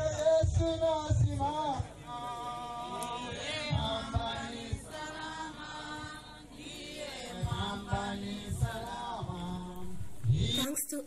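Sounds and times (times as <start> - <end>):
group singing a hymn: 0.0 - 10.8
low thumps on microphone: 7.3 - 10.6.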